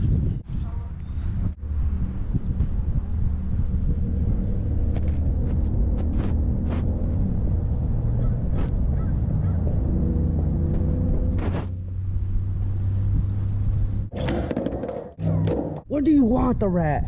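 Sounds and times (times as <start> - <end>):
skateboard wheels rolling on concrete: 13.2 - 15.8.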